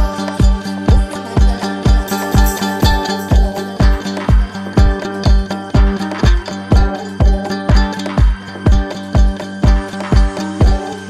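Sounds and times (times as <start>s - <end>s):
kick drum: 0.0s - 10.9s
house dance music: 2.0s - 4.4s.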